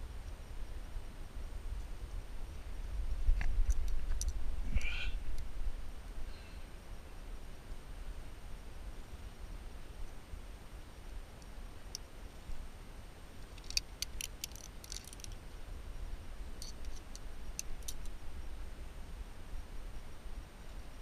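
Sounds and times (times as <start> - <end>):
carabiners clicking: 13.4 - 15.4, 16.6 - 18.1.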